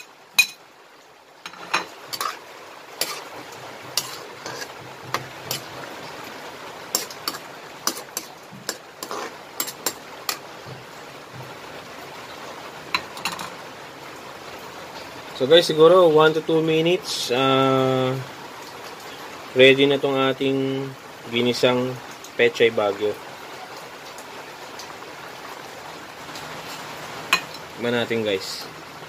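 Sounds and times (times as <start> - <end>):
simmering broth hiss: 0.0 - 29.0
ladle scraping a wok: 1.5 - 2.4, 3.0 - 5.8, 6.9 - 11.4, 26.6 - 27.6.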